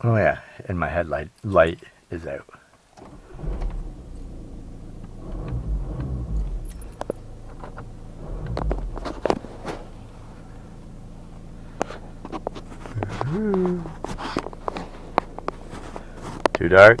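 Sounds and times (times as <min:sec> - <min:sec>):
rustling and bumping in car seat: 0:03.0 - 0:10.4, 0:11.8 - 0:17.0.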